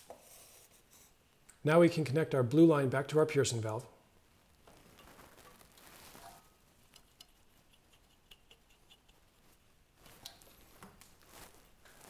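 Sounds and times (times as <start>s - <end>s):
light scraping: 4.7s - 12.0s.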